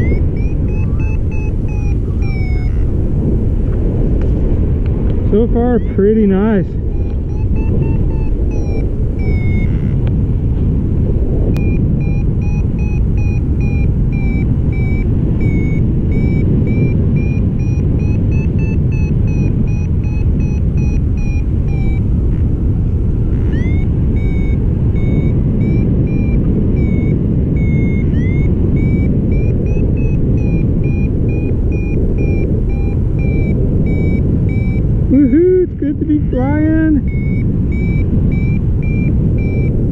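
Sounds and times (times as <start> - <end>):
variometer high-pitched beeping: 0.0 - 3.7, 5.3 - 10.5, 11.4 - 39.9
wind rushing over microphone: 0.0 - 39.9.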